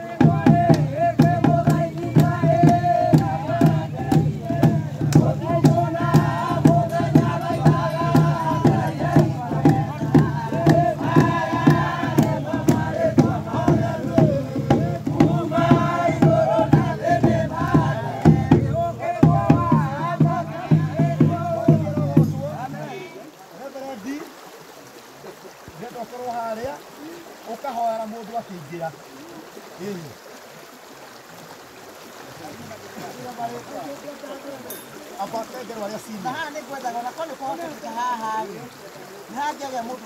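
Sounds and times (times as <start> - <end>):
group chanting: 0.0 - 23.3
percussive beat: 0.2 - 22.8.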